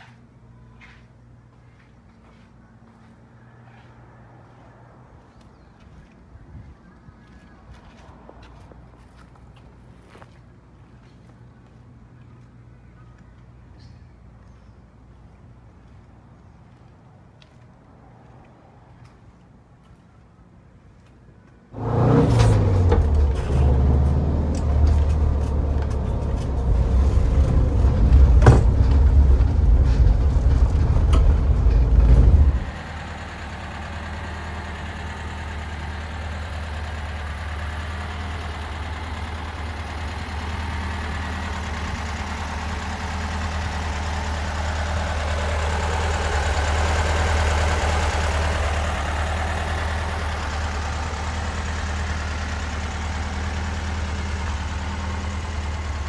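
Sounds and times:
engine running unevenly and idling: 21.8 - 56.0.

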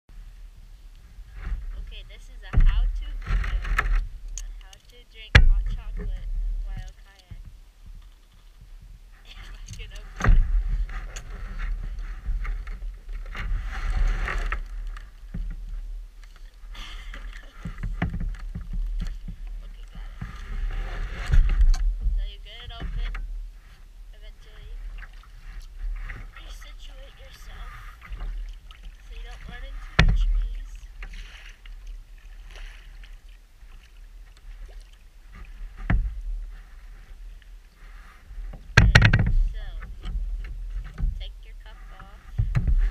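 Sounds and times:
low rumble: 0.1 - 42.9
paddle splashing water: 0.1 - 42.9
grainy scraping: 9.2 - 15.2.

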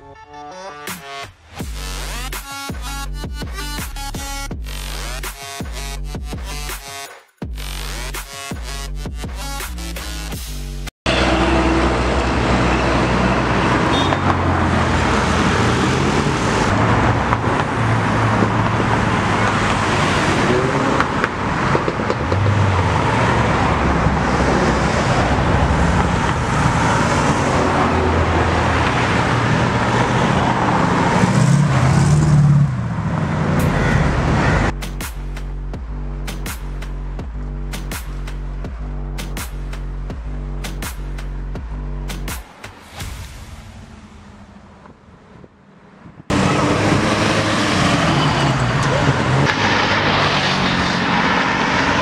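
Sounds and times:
loud car engine: 7.6 - 42.6, 43.5 - 52.0
cars driving past: 11.1 - 34.8, 41.3 - 52.0.

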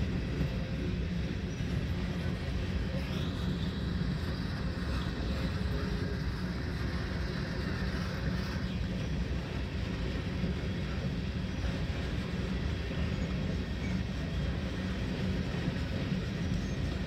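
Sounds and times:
freight train wheels rumbling: 0.0 - 17.0.

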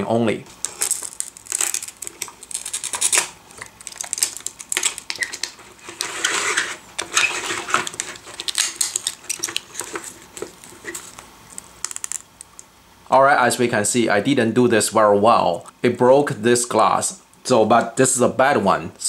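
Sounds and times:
glass cracking: 0.6 - 5.6, 7.2 - 12.6.

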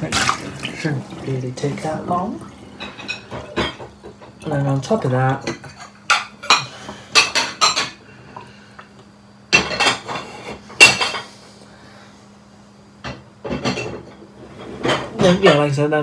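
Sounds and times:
dishes and cutlery clinking: 2.8 - 4.5, 5.1 - 8.0, 9.6 - 11.3, 13.1 - 15.7.

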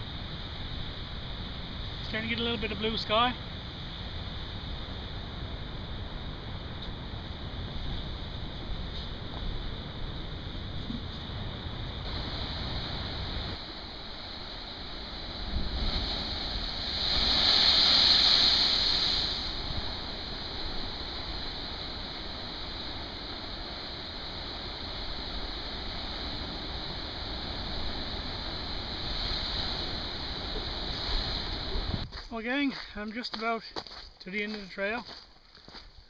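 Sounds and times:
wind rumbling on microphone: 0.0 - 32.8
sea surf breaking on rocks: 12.0 - 32.0.

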